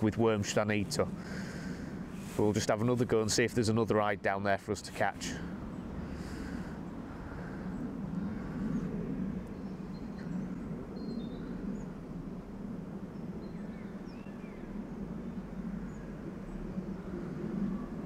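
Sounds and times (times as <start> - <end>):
low outdoor rumble: 0.0 - 18.0
small birds chirping: 5.3 - 18.0.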